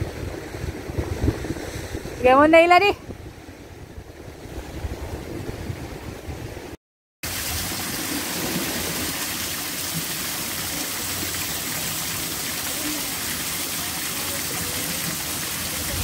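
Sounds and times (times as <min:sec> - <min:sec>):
small waterfall splashing: 0:07.2 - 0:16.0
surf breaking on rocks: 0:07.5 - 0:16.0.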